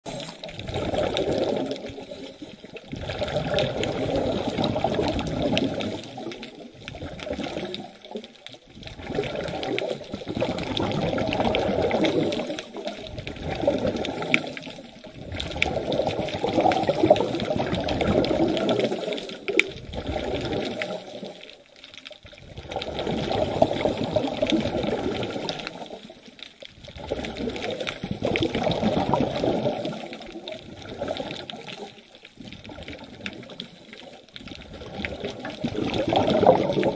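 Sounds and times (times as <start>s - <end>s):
regulator exhaust bubbles: 26.9s - 31.8s.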